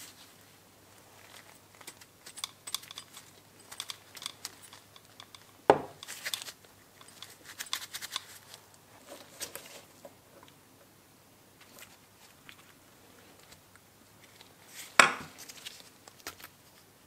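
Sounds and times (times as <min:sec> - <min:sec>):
metal parts clicking and rustling: 0:01.2 - 0:09.9.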